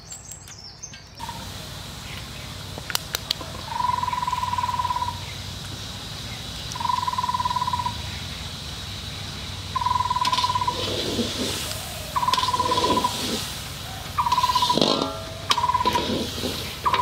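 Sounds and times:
sharp clicks: 0:02.1 - 0:03.8
animal trilling: 0:09.8 - 0:17.0.

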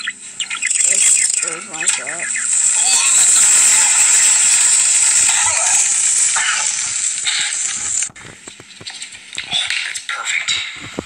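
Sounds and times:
bomb fuse sizzling: 0:00.0 - 0:10.0
faint clicks and taps: 0:07.8 - 0:11.0.

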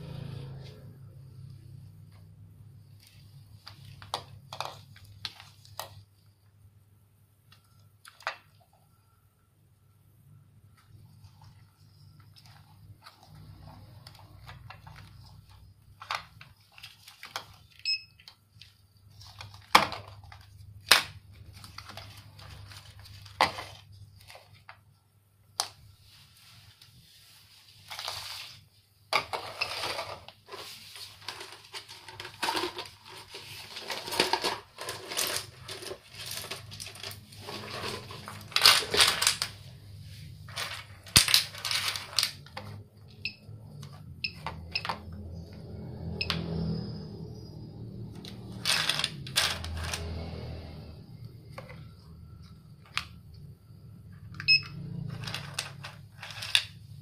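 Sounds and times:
plastic parts rattling on tile floor: 0:02.9 - 0:06.1, 0:10.8 - 0:24.8, 0:27.8 - 0:45.6, 0:48.1 - 0:50.5, 0:54.4 - 0:57.0.

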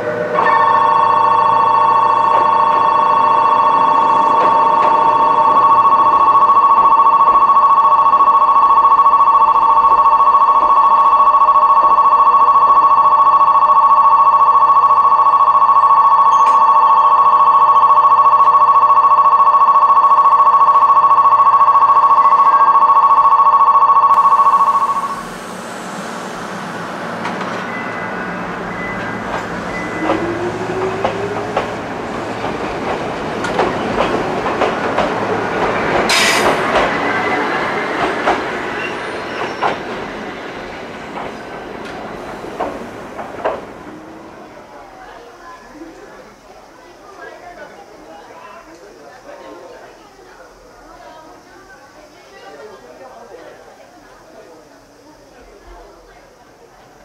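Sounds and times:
station bell ringing: 0:00.0 - 0:44.4
train wheels clicking over rails: 0:25.2 - 0:44.1.

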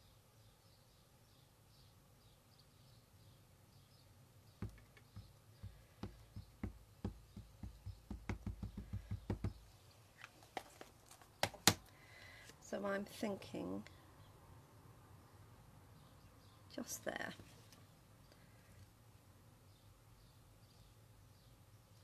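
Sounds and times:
rubber stamp tapping ink pad: 0:04.6 - 0:09.6.

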